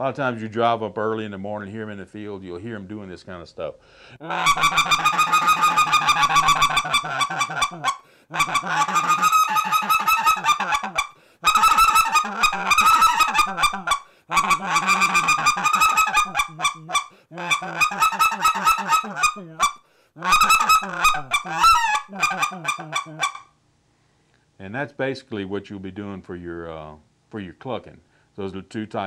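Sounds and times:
goose call clucks: 4.2s - 23.5s.

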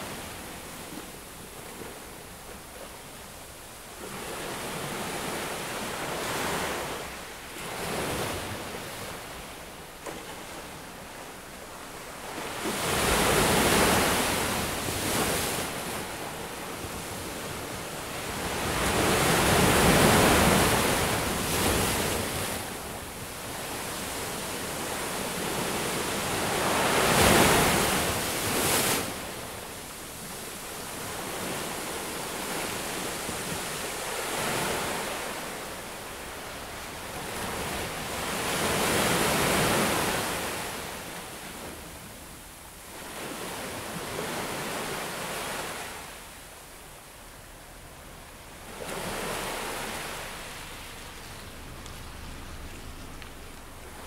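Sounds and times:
ocean surf breaking: 12.2s - 30.0s, 48.2s - 54.0s.

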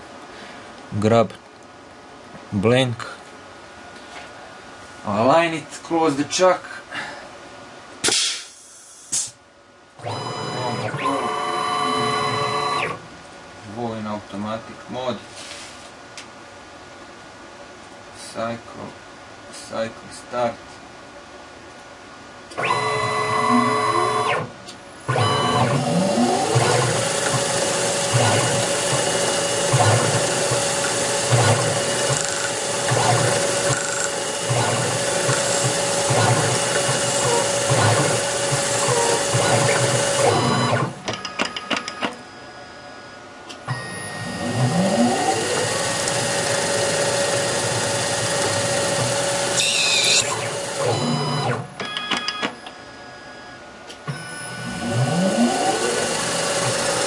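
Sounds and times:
axis motors whirring: 10.1s - 13.0s, 22.6s - 24.5s, 25.1s - 41.0s, 43.7s - 51.6s, 54.6s - 57.0s
lathe spindle motor whine: 10.1s - 13.0s, 22.6s - 24.5s, 25.1s - 41.0s, 43.9s - 51.5s, 54.6s - 57.0s.

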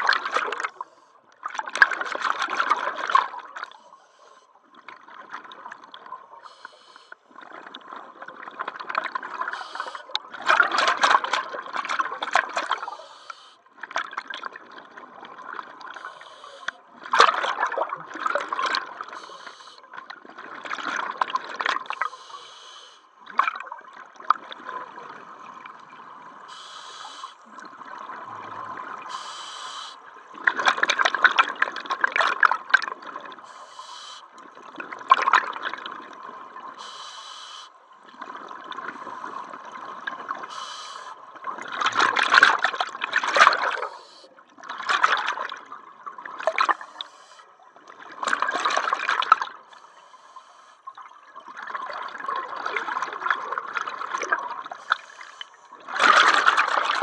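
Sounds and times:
exhaled bubbles gurgling underwater: 0.0s - 37.1s, 37.8s - 57.0s
regulator hissing on inhale: 6.5s - 7.2s, 9.5s - 10.1s, 12.8s - 13.6s, 16.0s - 16.8s, 19.2s - 19.9s, 22.0s - 23.1s, 26.5s - 27.4s, 29.1s - 30.0s, 33.4s - 34.3s, 36.8s - 37.8s, 40.4s - 41.2s, 43.8s - 44.3s, 46.8s - 47.5s, 49.7s - 50.9s, 54.8s - 55.6s.

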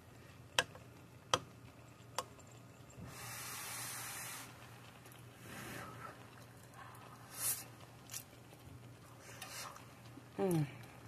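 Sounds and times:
breathy hiss: 3.0s - 7.8s.

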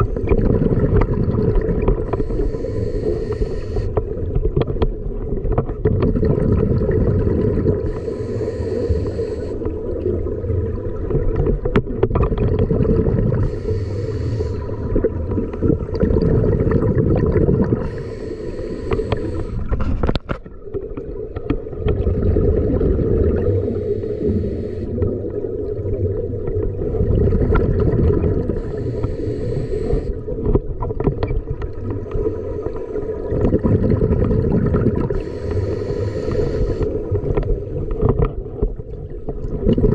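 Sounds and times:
exhaled air bubbling: 0.0s - 39.9s
regulator inhalation hiss: 2.1s - 4.0s, 7.8s - 9.7s, 13.4s - 14.8s, 17.8s - 19.7s, 23.6s - 25.0s, 28.6s - 30.2s, 35.2s - 37.0s.

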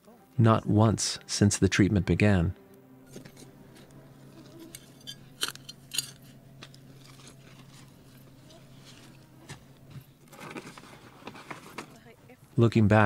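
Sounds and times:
faint low hum: 2.4s - 13.0s
soil crunching and scraping: 3.1s - 12.7s.

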